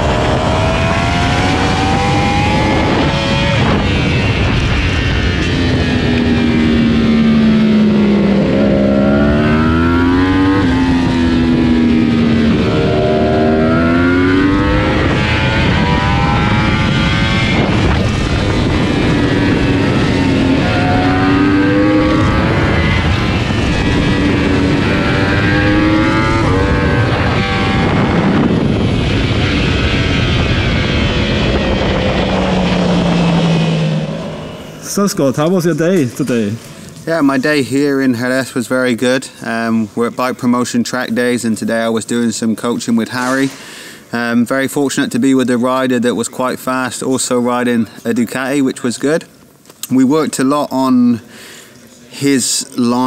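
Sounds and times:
motorcycle engine revving: 0.0 - 35.7
wind noise: 0.0 - 37.2.

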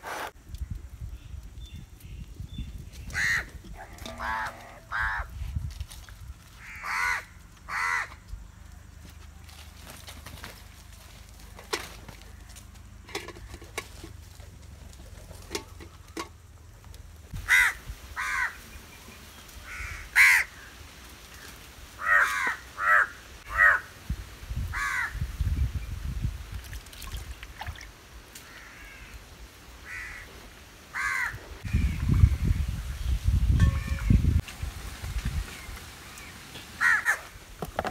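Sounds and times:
crows cawing: 3.2 - 3.5, 4.1 - 5.3, 6.6 - 8.2, 17.4 - 18.6, 19.6 - 20.7, 21.4 - 23.9, 24.7 - 25.2, 28.4 - 29.2, 29.8 - 30.3, 30.9 - 31.9, 36.8 - 37.3.

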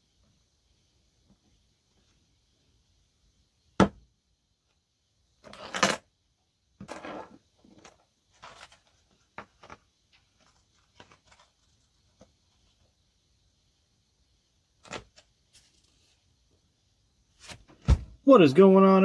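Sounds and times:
paper rustling: 7.7 - 12.8, 14.8 - 16.2, 17.4 - 18.1.

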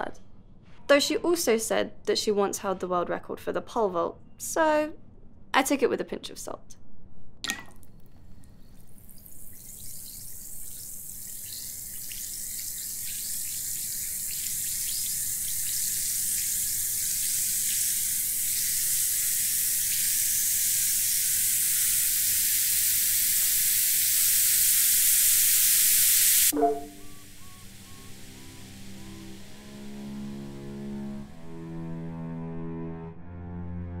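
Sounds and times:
water fizzing in a glass: 7.5 - 30.5.

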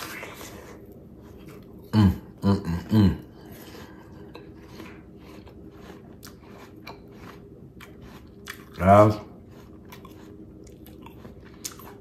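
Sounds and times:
man chewing crisp apple: 0.0 - 12.0
man humming mm: 1.8 - 3.4.

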